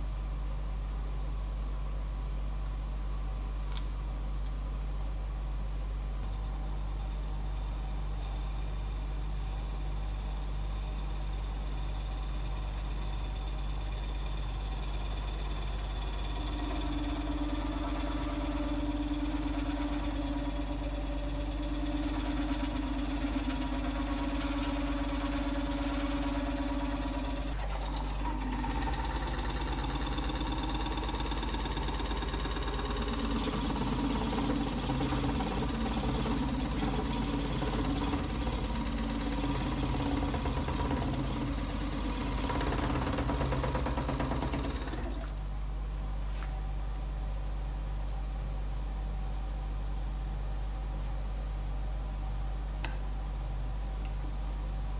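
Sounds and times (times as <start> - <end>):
lathe motor hum and whine: 6.2 - 49.6
tool cutting spinning wood: 9.2 - 45.3.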